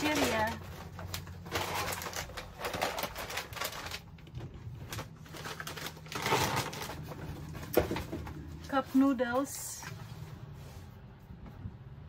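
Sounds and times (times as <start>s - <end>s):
plastic snack packets crinkling: 0.0s - 8.5s.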